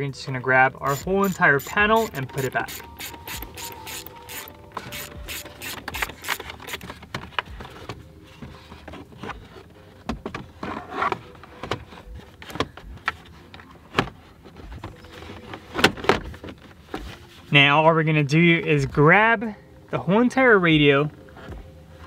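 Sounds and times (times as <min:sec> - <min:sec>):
ratchet wrench clicking: 0:00.9 - 0:06.9.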